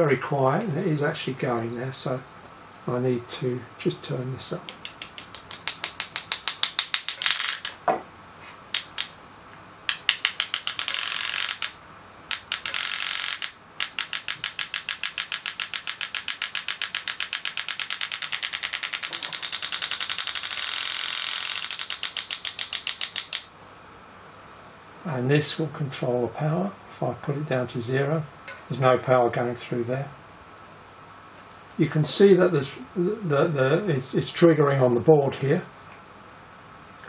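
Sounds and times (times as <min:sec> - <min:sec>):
engraving handpiece clicking: 0:03.7 - 0:07.8, 0:08.7 - 0:09.2, 0:09.9 - 0:23.5.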